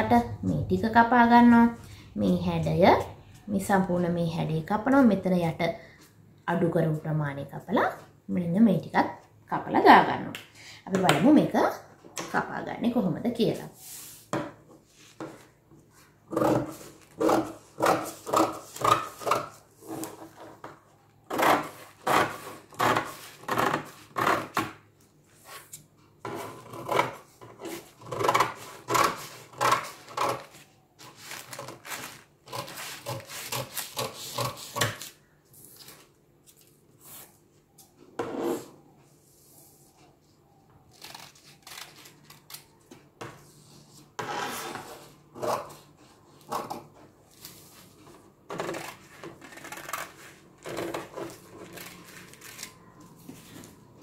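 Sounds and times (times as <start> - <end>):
shears snipping paper: 40.9 - 42.8, 51.2 - 52.8.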